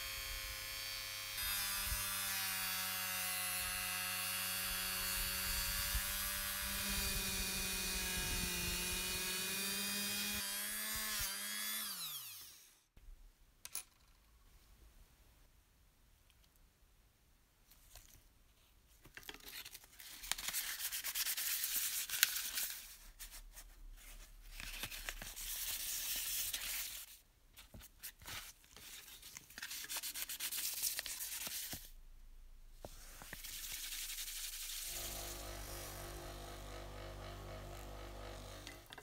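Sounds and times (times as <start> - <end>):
sandpaper rubbing on metal sheet: 33.3 - 35.8.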